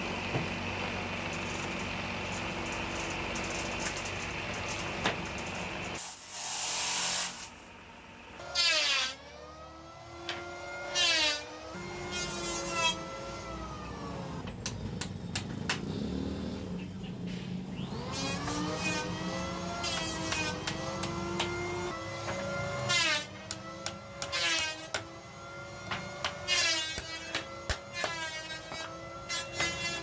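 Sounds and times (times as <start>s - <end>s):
engine revving: 12.8s - 30.0s.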